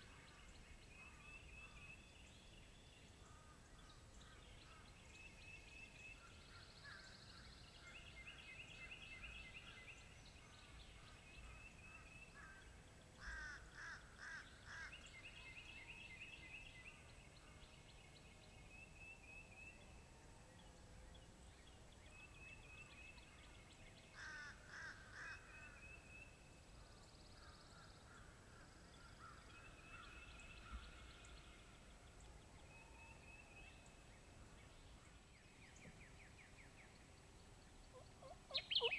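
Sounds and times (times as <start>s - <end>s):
songbirds singing: 0.0s - 38.9s
harsh bird calls: 37.9s - 38.9s.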